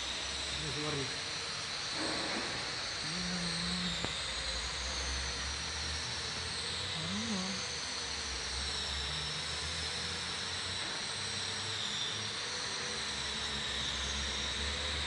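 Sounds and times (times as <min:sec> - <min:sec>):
faint high whines: 0:00.0 - 0:15.0.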